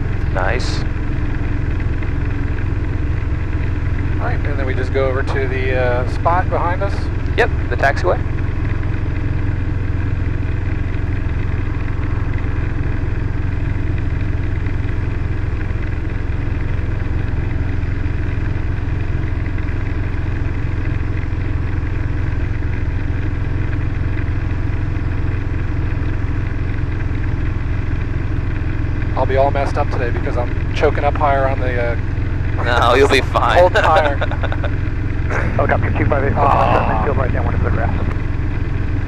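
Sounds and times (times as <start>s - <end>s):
helicopter engine and rotor: 0.0s - 39.0s.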